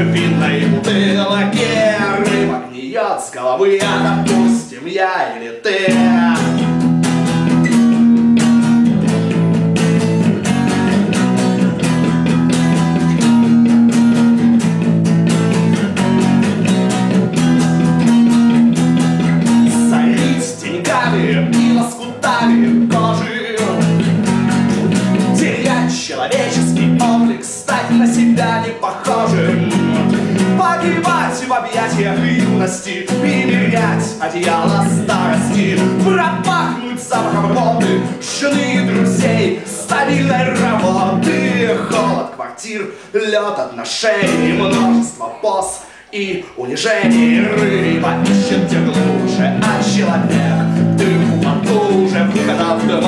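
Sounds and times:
bass guitar line: 0.0s - 2.7s, 3.6s - 4.7s, 5.8s - 42.3s, 44.2s - 45.5s, 46.9s - 53.0s
strummed acoustic guitar: 0.0s - 2.7s, 3.6s - 4.7s, 5.8s - 42.3s, 44.2s - 46.1s, 46.9s - 53.0s
man singing loudly: 0.0s - 6.7s, 19.5s - 24.0s, 25.2s - 53.0s.

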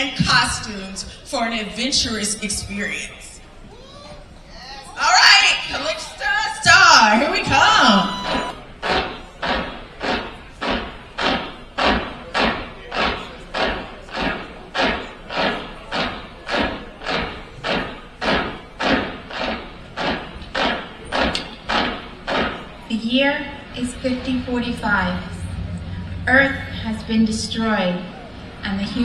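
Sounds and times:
slow pounding beat: 7.4s - 29.0s.

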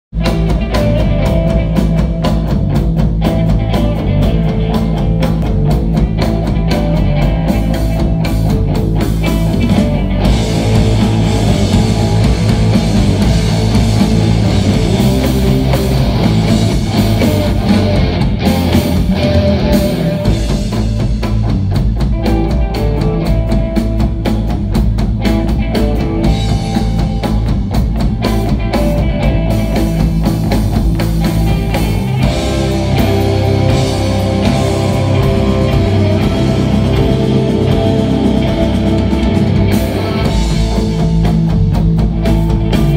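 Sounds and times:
rock band playing live: 0.1s - 42.9s
sustained electric guitar: 0.1s - 42.9s
rapid drum strokes: 0.2s - 42.9s.

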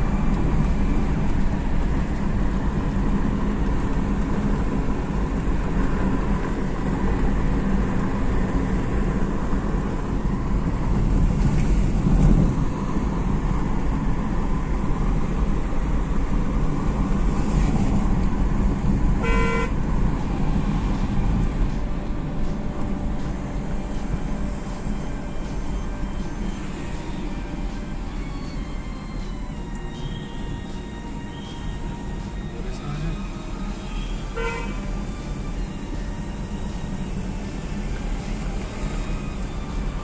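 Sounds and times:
car engine and road noise: 0.0s - 40.0s
car horn toot: 19.2s - 19.8s, 34.0s - 34.8s.

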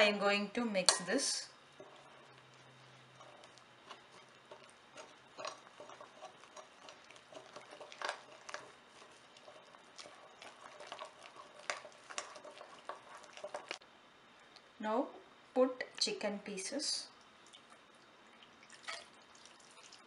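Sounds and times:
spoon scraping glass bowl: 0.9s - 13.8s.

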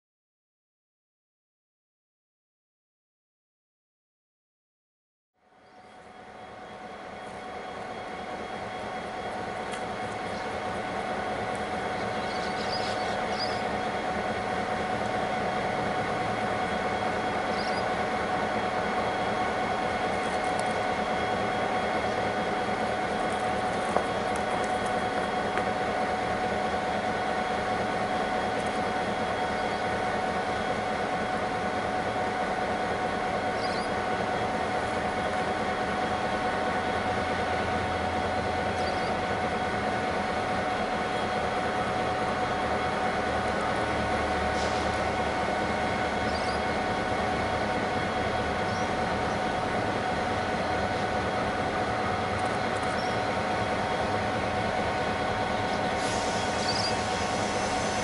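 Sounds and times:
diesel locomotives idling: 5.4s - 58.0s
birds chirping: 11.9s - 13.7s, 52.5s - 53.4s.

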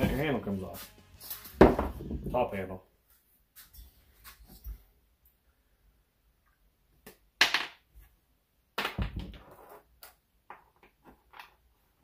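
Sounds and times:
parts knocking on wooden bench: 1.6s - 2.3s.

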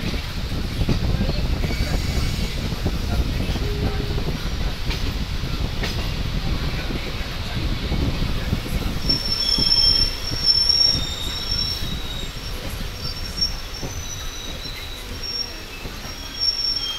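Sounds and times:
train rumbling: 0.0s - 16.9s
train wheels squealing: 1.6s - 2.8s, 8.9s - 16.9s.

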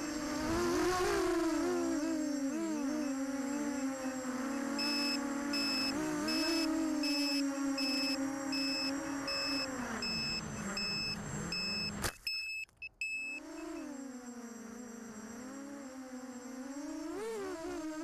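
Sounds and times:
quadcopter motor whine: 0.0s - 12.1s, 13.0s - 18.0s
short electronic beeps: 4.8s - 13.4s.

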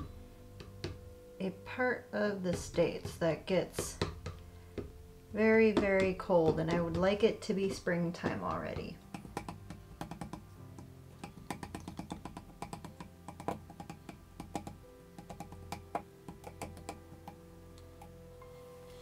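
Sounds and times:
faint background music: 0.0s - 19.0s
stir stick tapping plastic cup: 2.5s - 5.0s, 5.7s - 17.4s.

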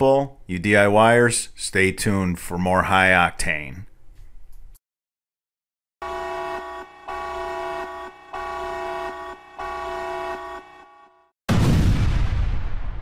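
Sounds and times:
multi-tone air horn blasts: 6.0s - 11.3s.

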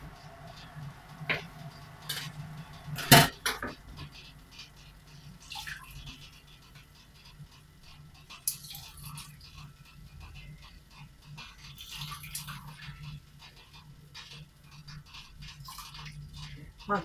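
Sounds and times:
dishes and utensils clattering: 2.1s - 2.4s, 3.0s - 3.8s.

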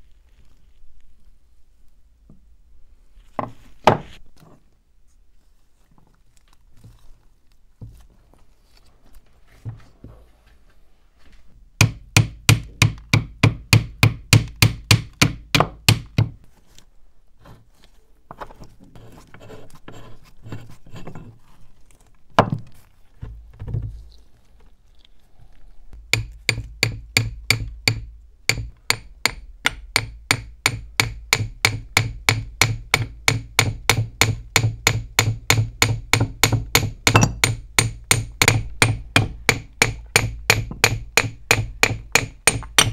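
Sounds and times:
hammer tapping on metal: 26.2s - 42.9s.

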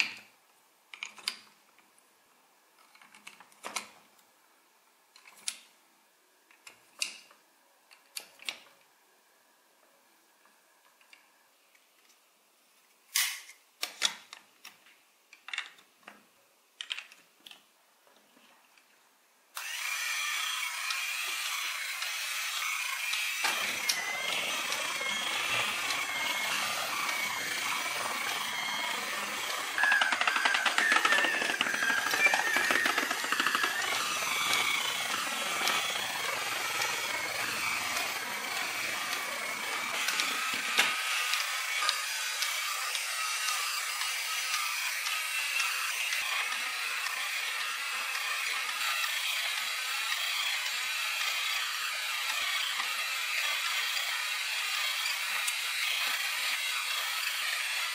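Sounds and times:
plastic gears grinding: 19.6s - 57.9s
toy motor whirring: 19.6s - 57.9s.

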